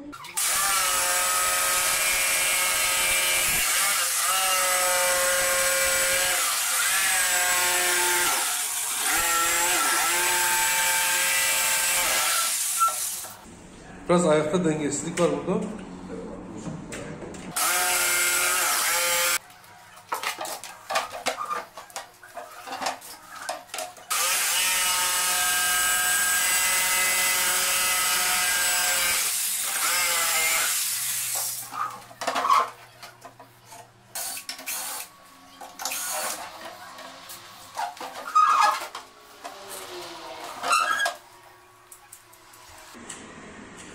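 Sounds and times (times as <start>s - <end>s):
jigsaw cutting with whining motor: 0.4s - 13.2s, 17.6s - 19.4s, 24.1s - 30.9s.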